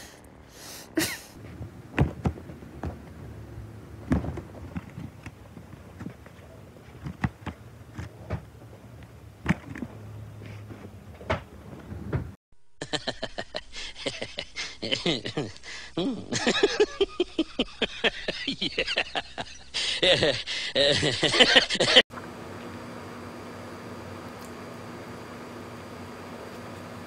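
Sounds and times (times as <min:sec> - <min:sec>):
knocks and thuds: 0:01.9 - 0:03.1, 0:04.0 - 0:05.1.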